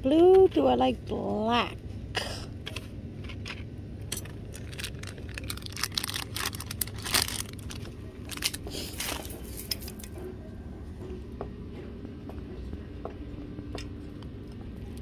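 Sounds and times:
plastic packaging crinkling: 4.4 - 10.1.

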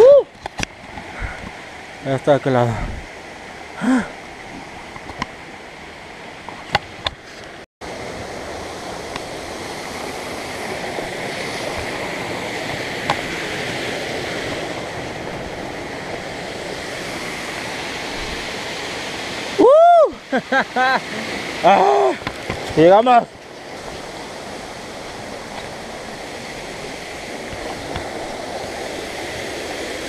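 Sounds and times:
creek water rushing over rocks: 0.0 - 30.0.

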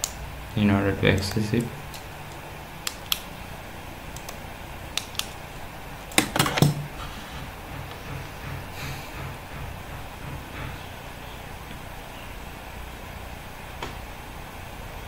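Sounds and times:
low steady hum: 0.0 - 15.0
computer mouse clicks: 1.1 - 3.3, 4.1 - 5.4.

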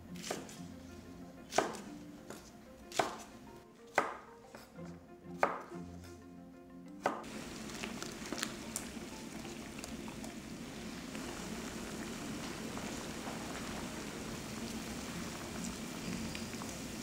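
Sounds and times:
knife chopping on wooden board: 0.2 - 0.6, 1.5 - 3.3, 3.9 - 4.8, 5.4 - 5.7, 7.0 - 7.3
water boiling in a pot: 7.2 - 17.0.

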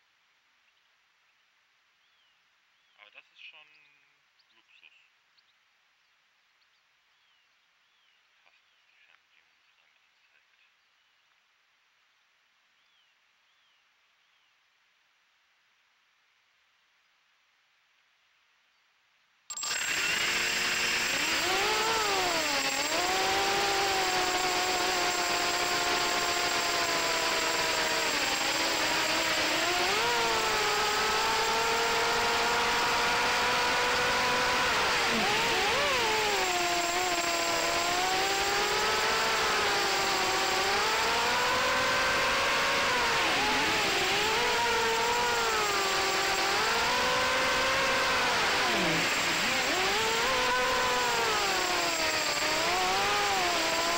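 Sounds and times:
drone motors whining: 19.5 - 53.9.

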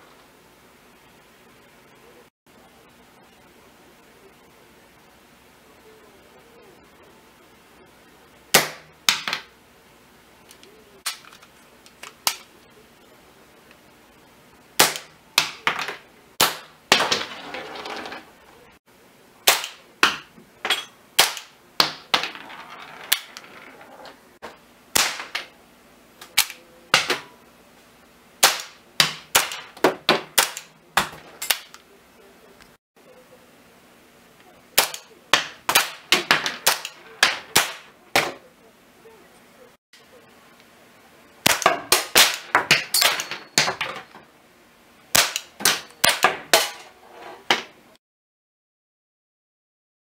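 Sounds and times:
cap gun cracks: 26.2 - 26.6.

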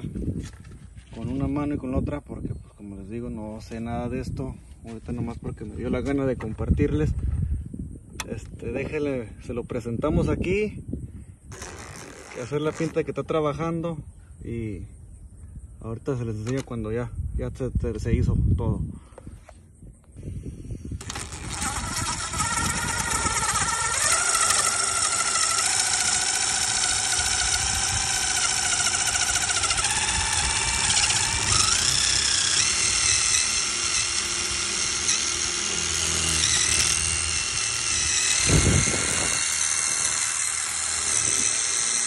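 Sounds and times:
cordless drill motor whining: 11.5 - 13.0, 20.3 - 42.0
drill bit grinding: 11.5 - 13.1, 21.0 - 42.0.

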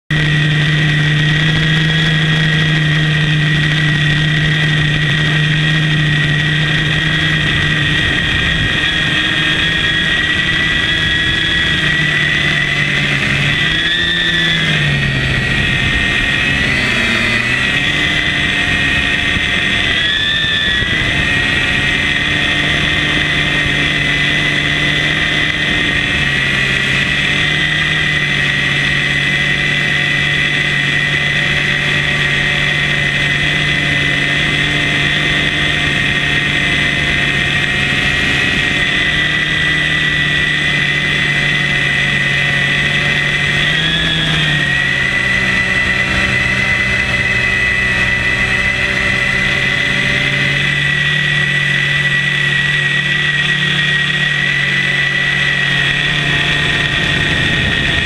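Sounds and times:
drone motors and propellers whining: 0.1 - 58.0.

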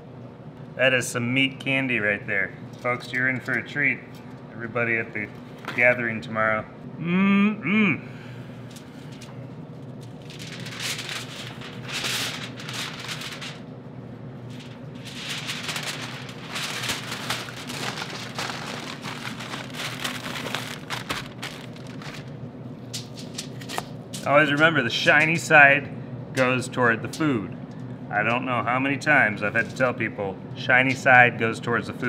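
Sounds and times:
aluminium foil crinkling: 8.6 - 13.7, 14.4 - 23.9.

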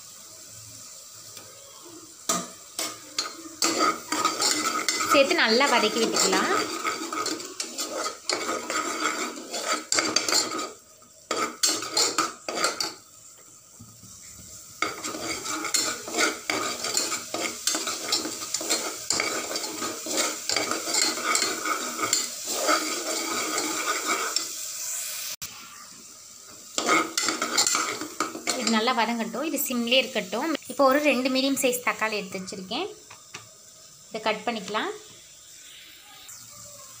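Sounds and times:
faint sizzle of frying paste: 0.0 - 37.0
metal spoon scraping a pot: 2.3 - 13.0, 14.8 - 24.6, 26.8 - 28.9.

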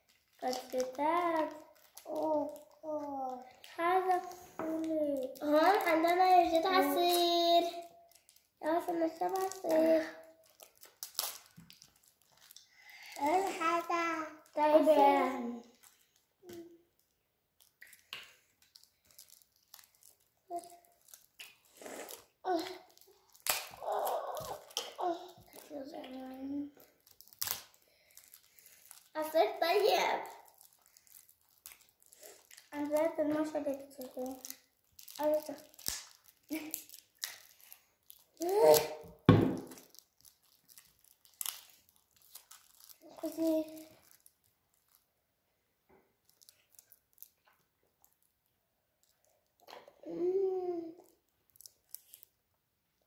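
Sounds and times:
plastic wrapping crinkling: 0.0 - 45.1, 46.1 - 49.9, 50.6 - 52.4
child voice: 0.4 - 7.9, 8.6 - 10.3, 13.2 - 15.8, 22.4 - 22.9, 23.8 - 26.8, 29.2 - 30.5, 32.7 - 34.6, 35.2 - 35.8, 43.0 - 43.9.

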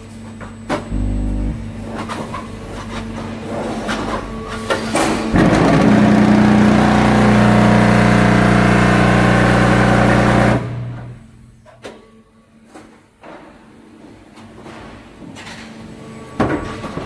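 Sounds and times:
machine vibrating hum: 0.4 - 2.3, 5.4 - 11.8.

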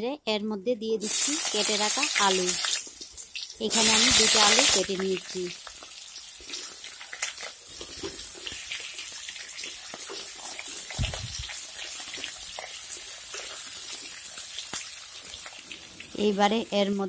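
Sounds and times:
oil popping and ticking: 1.0 - 16.2
potatoes sizzling in hot oil: 1.0 - 17.0.

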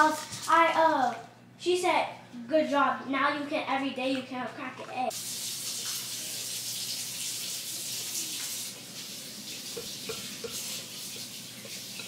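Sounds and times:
tap water running into sink: 5.1 - 12.0.

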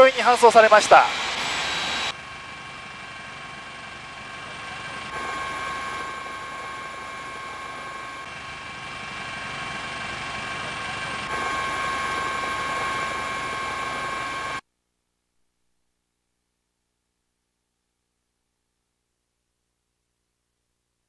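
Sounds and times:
helicopter running: 0.0 - 14.6.

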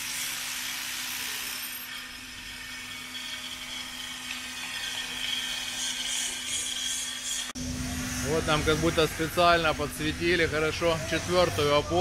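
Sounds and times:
angle grinder running: 0.0 - 12.0
high steady whine: 7.2 - 12.0.

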